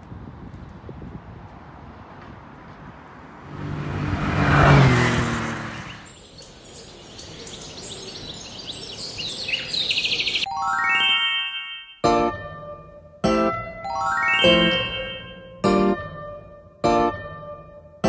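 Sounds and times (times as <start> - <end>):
vehicle passing by: 1.2 - 10.4
birds chirping: 5.2 - 10.5.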